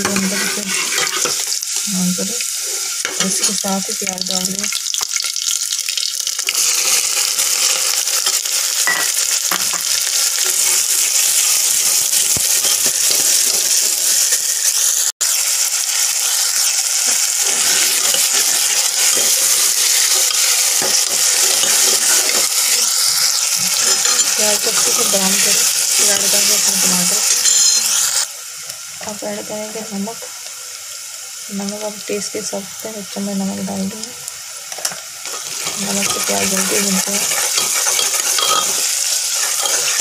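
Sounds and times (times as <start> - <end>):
onions sizzling in oil: 0.0 - 40.0
ladle scraping a metal pot: 0.1 - 1.5.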